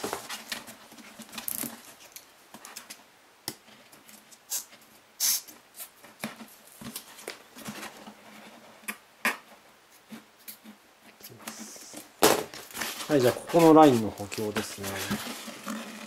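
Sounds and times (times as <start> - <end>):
foam rustling and tapping: 5.9 - 16.0.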